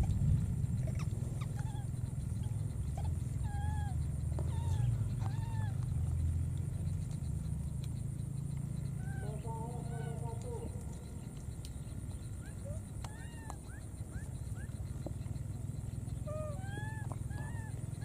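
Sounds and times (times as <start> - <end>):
steady low rumble: 0.0 - 18.0
baby monkey crying: 0.7 - 6.0, 8.8 - 11.0, 12.3 - 14.9, 16.2 - 18.0.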